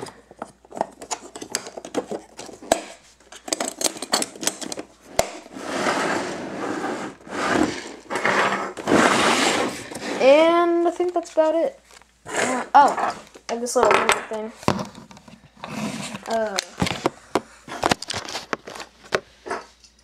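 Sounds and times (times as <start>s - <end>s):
plastic sliding and scraping: 5.0s - 13.4s, 14.6s - 19.6s.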